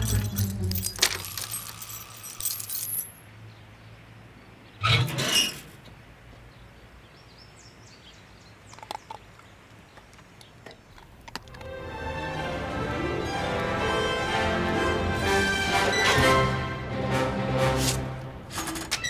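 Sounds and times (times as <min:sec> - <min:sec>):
metal gate rattling against lock: 0:00.0 - 0:03.2, 0:18.5 - 0:19.0
music: 0:11.5 - 0:18.6.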